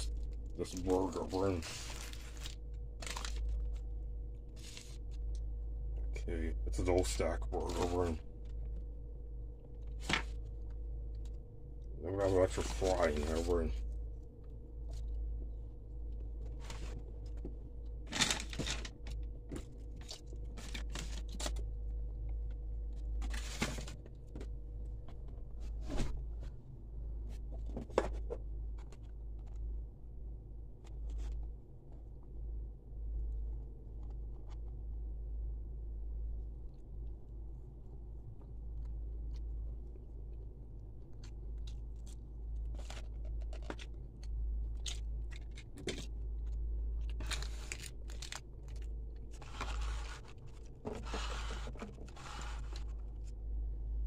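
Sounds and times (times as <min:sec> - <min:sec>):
paper bag crinkling: 0:00.0 - 0:03.9, 0:04.5 - 0:05.3, 0:12.2 - 0:13.8, 0:47.1 - 0:53.2
steady low hum: 0:00.0 - 0:54.0.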